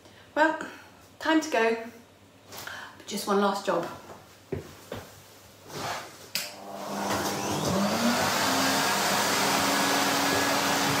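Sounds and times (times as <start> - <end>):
vacuum cleaner running: 5.7 - 11.0.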